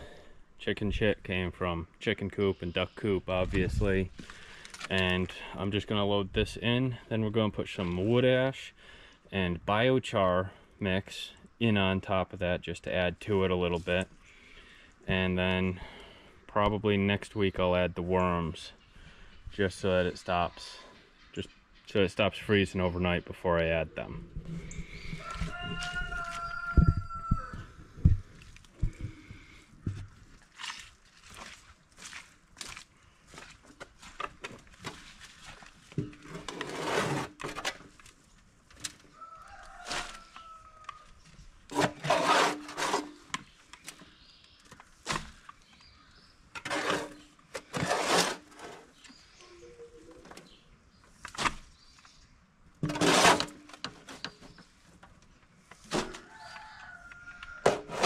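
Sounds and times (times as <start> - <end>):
chickens calling: 24.2 - 28.0
leaves rustling and scraping: 30.3 - 44.0, 44.7 - 49.4, 52.8 - 55.0.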